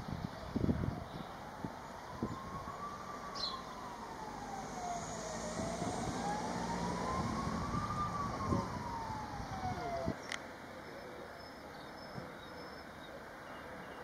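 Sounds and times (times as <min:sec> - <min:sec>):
emergency siren wailing: 0:00.4 - 0:10.2.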